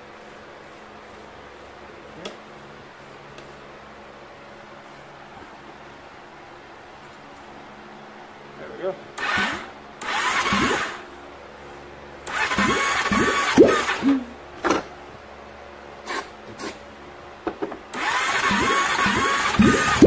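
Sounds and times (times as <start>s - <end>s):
engine cranking on starter: 9.2s - 11.0s, 12.2s - 14.0s, 17.9s - 20.0s.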